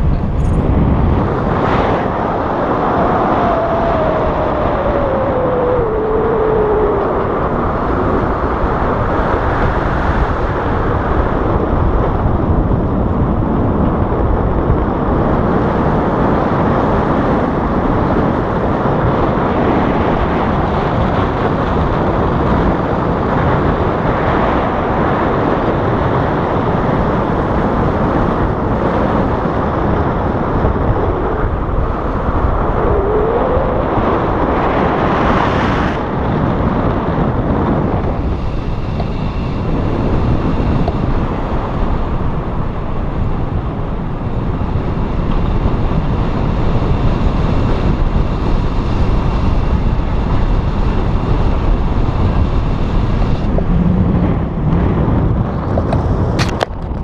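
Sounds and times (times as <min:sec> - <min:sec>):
wind rushing over microphone: 0:00.0 - 0:57.0.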